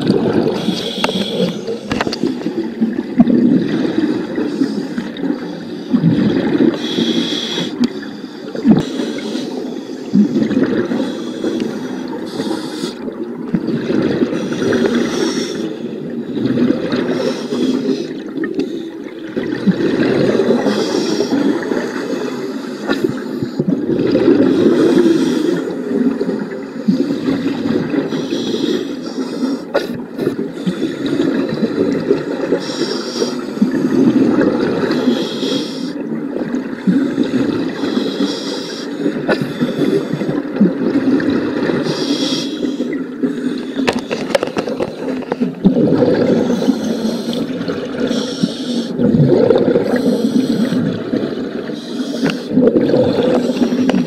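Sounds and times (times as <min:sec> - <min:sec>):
underwater bubbling rumble: 0:00.0 - 0:54.0
scuba regulator hissing: 0:46.4 - 0:48.9, 0:51.8 - 0:52.5.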